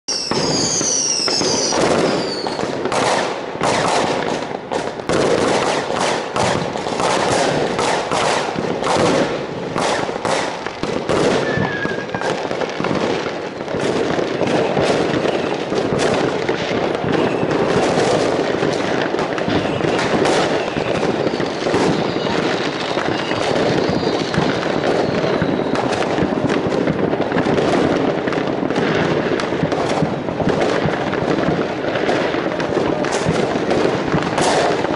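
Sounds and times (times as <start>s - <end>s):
firework whistle falling in pitch: 0.1s - 2.7s, 11.3s - 12.5s, 19.4s - 26.0s
firework bangs: 0.1s - 34.9s
fireworks crackling: 0.1s - 34.9s.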